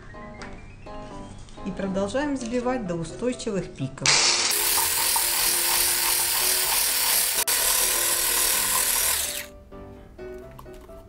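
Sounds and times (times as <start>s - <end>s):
electric whisk running: 4.1s - 9.5s.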